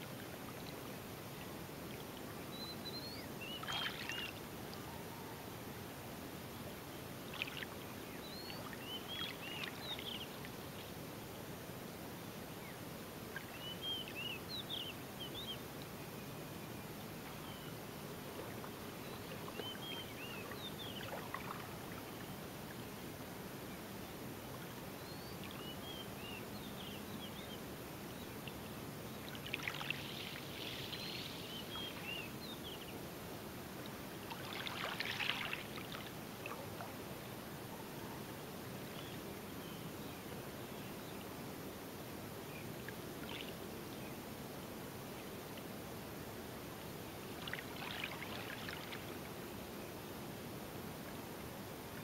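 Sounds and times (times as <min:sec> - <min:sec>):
sea lapping at shore: 0:03.4 - 0:04.8, 0:18.1 - 0:23.2, 0:33.5 - 0:37.4, 0:47.1 - 0:49.5.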